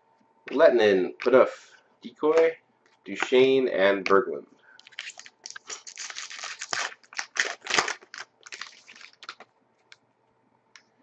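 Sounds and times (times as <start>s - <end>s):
cards being handled: 4.8s - 9.4s
foil wrappers crinkling: 4.8s - 9.4s.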